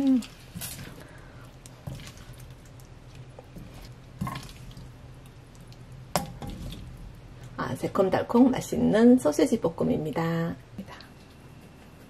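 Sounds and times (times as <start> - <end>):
soft wet squishes: 0.0 - 7.6
low steady hum: 0.0 - 12.0.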